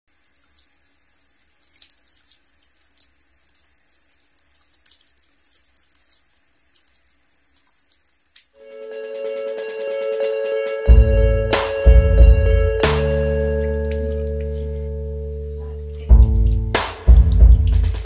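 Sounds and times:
water splashes and drips: 0:00.1 - 0:08.7, 0:12.8 - 0:18.0
tap water running into sink: 0:13.0 - 0:18.0.

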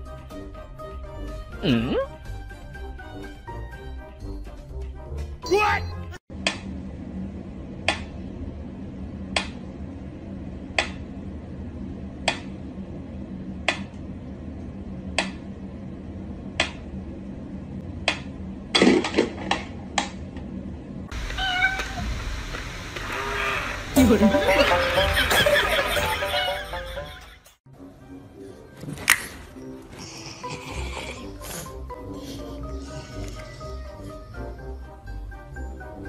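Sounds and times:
cat meowing: 0:21.2 - 0:22.1.

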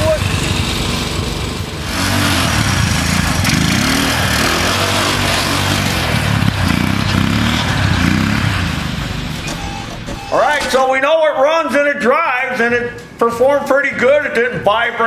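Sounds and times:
small engine revving: 0:00.0 - 0:08.9.

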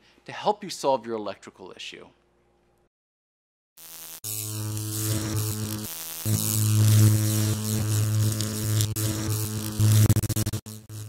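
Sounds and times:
electrical buzzing hum: 0:03.8 - 0:11.0.

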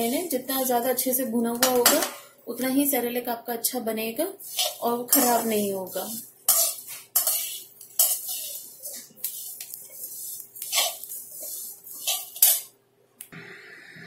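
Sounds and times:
grains rustling: 0:04.4 - 0:12.7
metal spatula scraping pan: 0:04.4 - 0:12.7.

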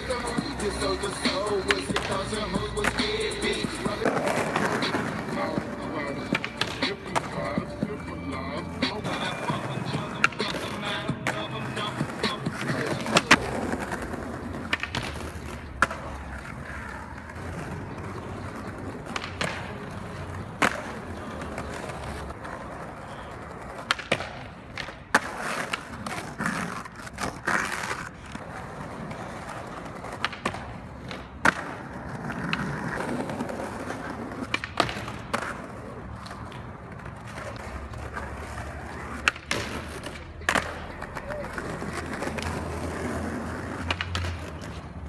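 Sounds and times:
skateboard grinding on ledge: 0:00.0 - 0:24.3, 0:25.0 - 0:45.0
skateboard wheels rolling on stone: 0:00.0 - 0:45.0
skateboard pops and landing clacks: 0:12.1 - 0:16.4, 0:19.0 - 0:19.8, 0:23.6 - 0:28.4, 0:29.1 - 0:37.7, 0:39.0 - 0:41.3, 0:41.9 - 0:44.8.

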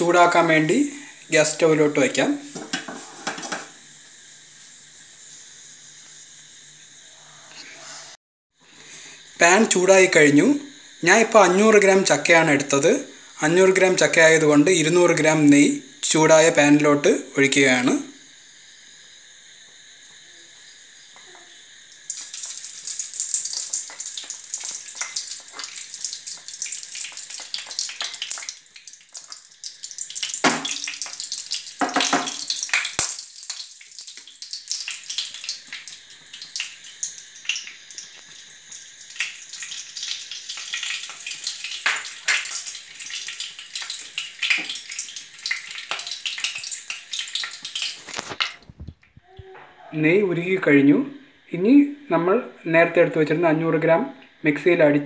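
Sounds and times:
ghee sizzling and crackling in pan: 0:01.4 - 0:07.2, 0:18.2 - 0:48.8.

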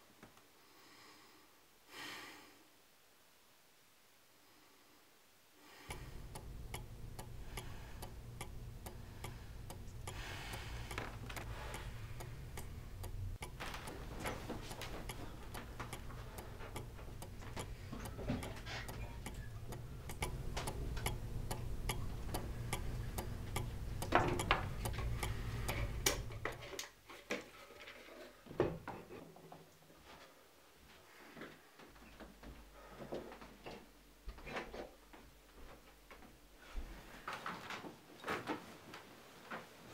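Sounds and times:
low steady hum: 0:05.7 - 0:26.8
clock ticking: 0:05.9 - 0:26.7.

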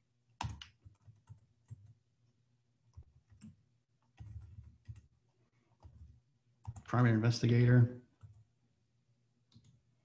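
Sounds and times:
keyboard and mouse clicks: 0:00.4 - 0:02.0, 0:09.5 - 0:09.8.

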